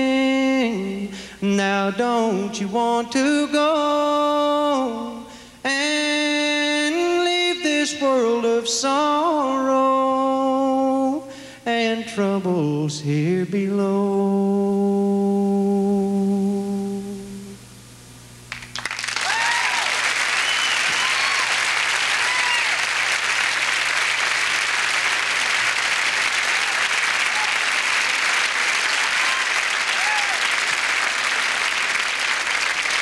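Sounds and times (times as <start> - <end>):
a cappella singing: 0.0 - 17.7
audience applause: 18.5 - 33.0
crowd cheering: 18.7 - 33.0.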